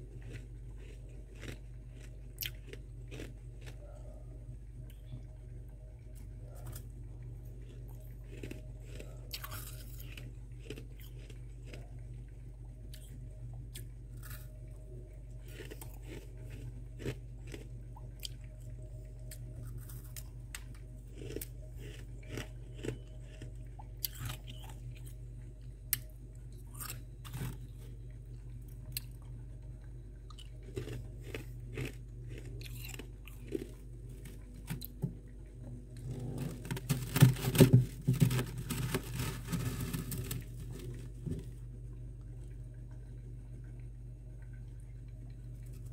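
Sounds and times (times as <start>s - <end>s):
chewing crunchy frost: 0.0s - 41.6s
steady low hum: 0.0s - 45.9s.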